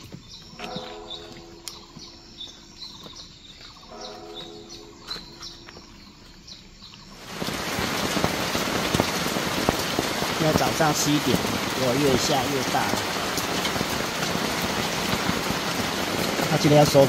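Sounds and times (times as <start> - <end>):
birds chirping: 0.0 - 17.0
long pitched bird calls: 0.0 - 17.0
water dripping off tarp edge: 6.9 - 17.0
heavy rain drumming on a tarp: 7.2 - 17.0.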